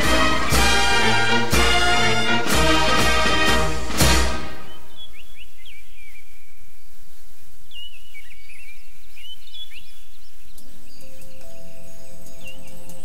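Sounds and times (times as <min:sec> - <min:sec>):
soft sustained music tones: 0:00.0 - 0:05.4, 0:10.1 - 0:13.0
background hiss: 0:00.0 - 0:13.0
birds chirping: 0:00.0 - 0:13.0.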